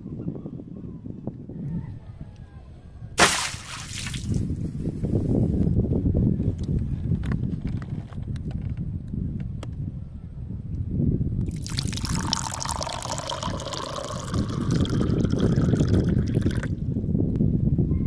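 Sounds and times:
water glugging in plastic bottle: 3.2s - 4.5s, 11.5s - 16.7s.

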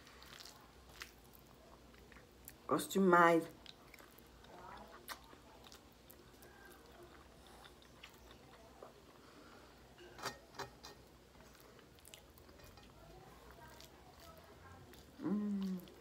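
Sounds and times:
chewing and wet mouth smacks: 3.6s - 9.0s.

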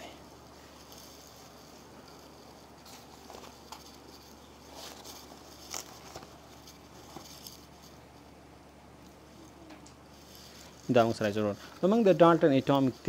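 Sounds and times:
faint background hum and hiss: 0.0s - 13.0s.

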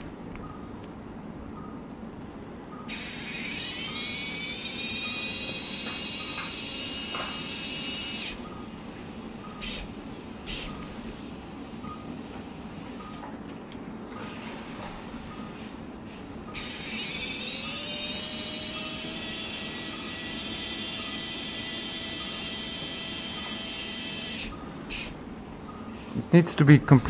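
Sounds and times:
surgical drill whining: 2.8s - 11.4s, 16.4s - 25.9s.

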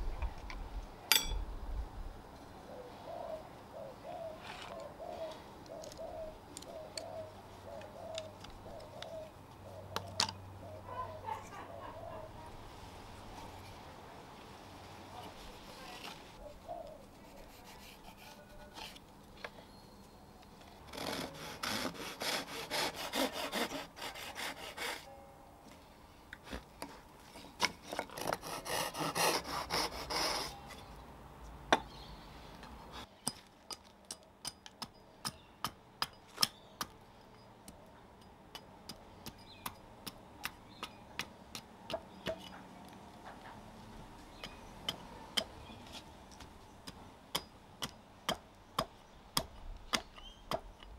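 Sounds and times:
handsaw cutting wood: 20.9s - 25.1s, 28.1s - 30.6s
axe chopping wood: 46.4s - 50.7s.

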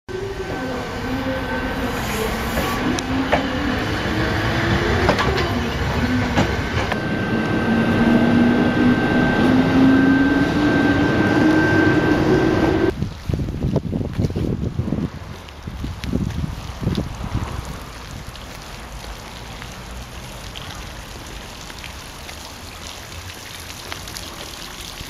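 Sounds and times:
train rumble: 0.1s - 13.0s
wheels clicking on rail joints: 0.4s - 13.0s.

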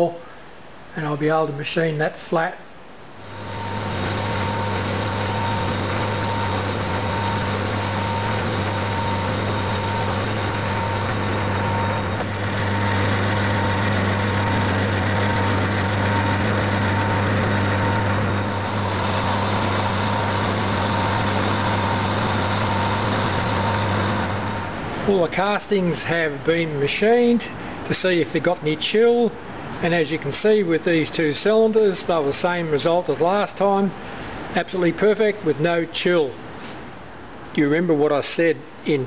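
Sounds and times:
faint high whine: 0.0s - 36.7s
hiss of metal cutting: 3.2s - 24.5s
lathe motor and gear hum: 3.2s - 25.3s.

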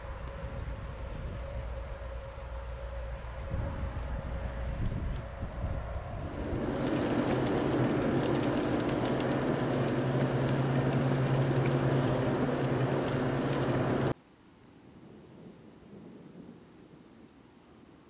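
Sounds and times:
car engine hum: 0.0s - 14.2s
tyres on wet road: 0.0s - 14.2s
wind on microphone: 0.0s - 14.2s.

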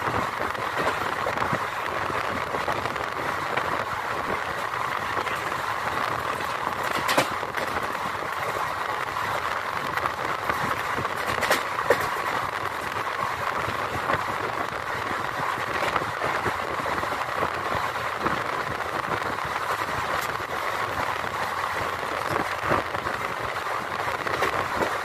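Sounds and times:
wheel-on-rail rushing noise: 0.0s - 25.0s.

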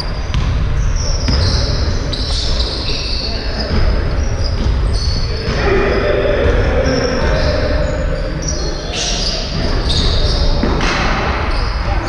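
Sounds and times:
sneakers squeaking on court floor: 0.0s - 12.0s
basketball bouncing: 0.2s - 7.6s.

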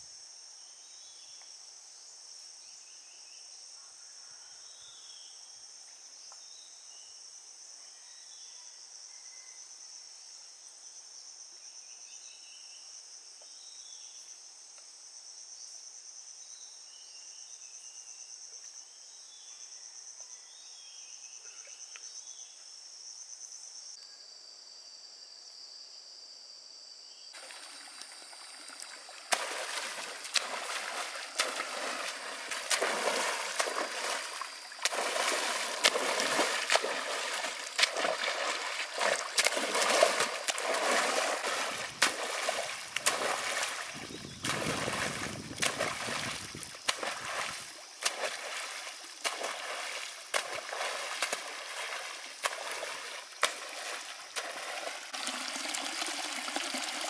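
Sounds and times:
insect chirps: 0.0s - 57.0s
insect chorus: 0.0s - 57.0s
feet slapping water: 27.4s - 57.0s
splashes of running through water: 27.4s - 57.0s.

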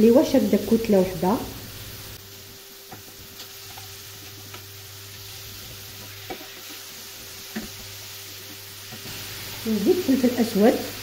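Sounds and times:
food sizzling in oil: 0.0s - 11.0s
spatula tapping pan: 2.8s - 4.6s, 6.0s - 9.1s
spatula stirring in pan: 2.8s - 9.8s.

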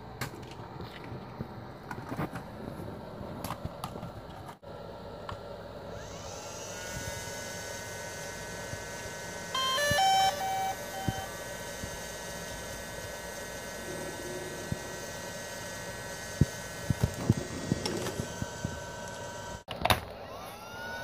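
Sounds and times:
high motor whine: 5.8s - 21.0s.

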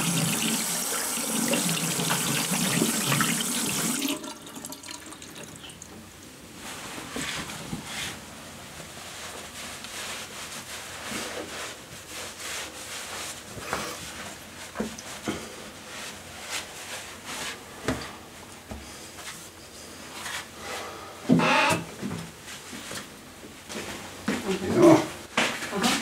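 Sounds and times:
water splashing at a sink: 0.0s - 5.8s
towel rubbing over a face: 6.6s - 18.5s.

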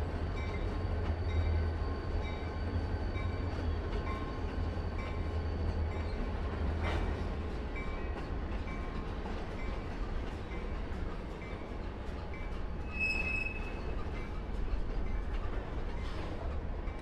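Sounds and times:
diesel locomotive engine rumble: 0.0s - 17.0s
train clank: 0.0s - 17.0s
train wheels on rail: 0.0s - 17.0s.

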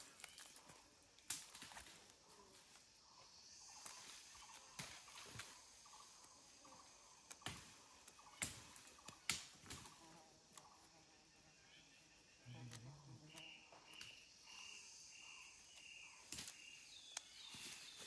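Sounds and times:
insects humming: 0.0s - 18.0s.

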